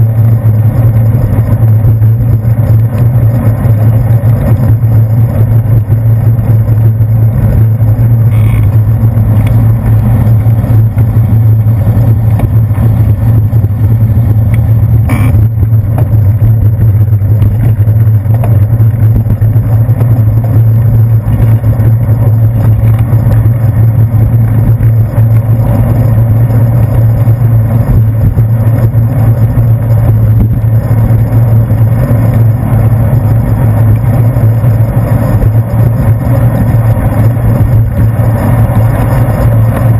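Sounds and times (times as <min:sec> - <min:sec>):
wind and road rumble: 0:00.0 - 0:39.9.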